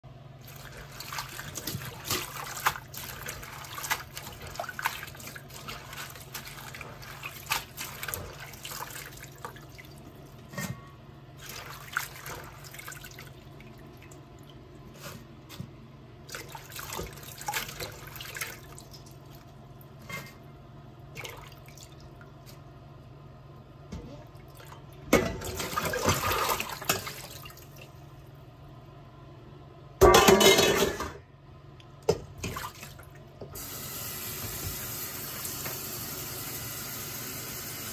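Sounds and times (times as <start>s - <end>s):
water splashing and dripping: 0.4s - 10.0s.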